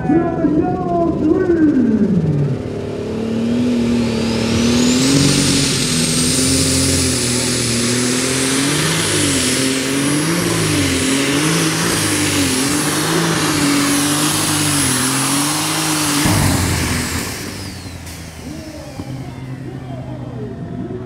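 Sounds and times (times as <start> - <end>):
diesel engine revving hard: 2.1 - 20.8
high turbo whistle: 3.6 - 10.1, 12.2 - 19.9.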